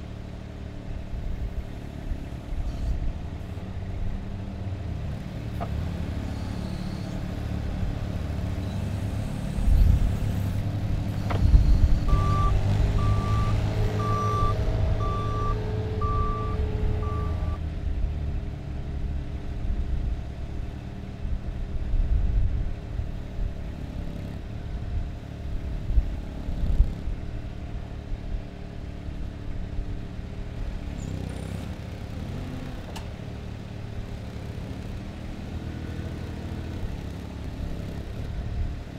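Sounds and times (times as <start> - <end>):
forklift engine running: 0.0 - 19.4
reversing alarm beeping: 11.4 - 17.6.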